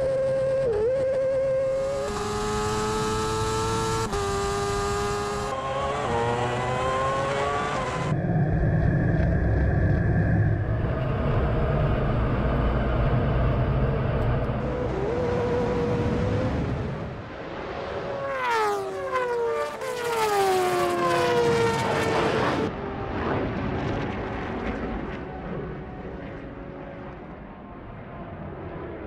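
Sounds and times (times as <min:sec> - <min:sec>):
racing motorcycle passing: 0:00.0 - 0:08.4, 0:14.5 - 0:23.1
jet engine rumble: 0:08.1 - 0:19.4.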